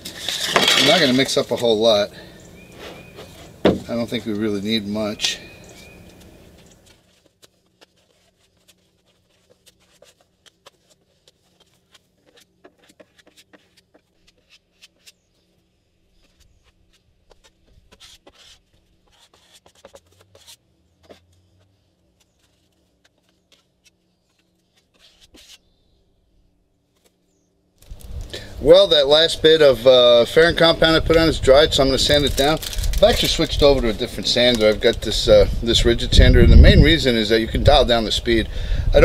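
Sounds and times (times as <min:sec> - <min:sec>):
plastic spreader scraping: 0:00.0 - 0:02.0, 0:30.6 - 0:36.8.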